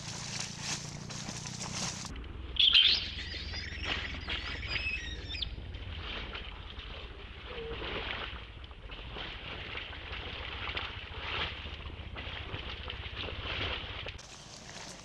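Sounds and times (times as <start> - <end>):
infant monkey crying: 2.8 - 5.4.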